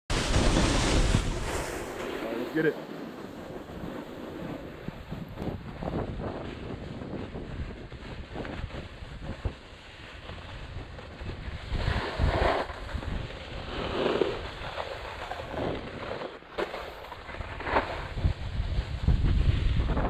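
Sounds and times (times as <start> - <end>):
wind buffeting microphone: 0.1 - 16.1, 17.4 - 20.0
skis sliding on snow: 0.1 - 20.0.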